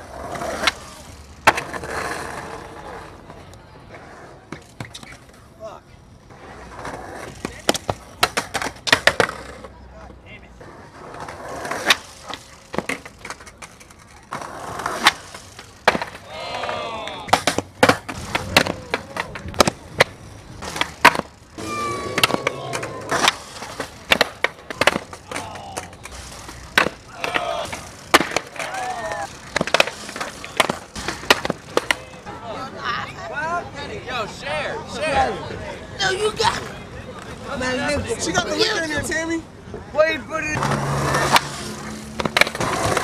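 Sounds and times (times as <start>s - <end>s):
skateboards popping and clattering: 0.0s - 33.0s, 35.0s - 43.0s
skateboard wheels rolling: 0.0s - 43.0s
voices calling out: 16.0s - 17.5s, 21.6s - 30.7s.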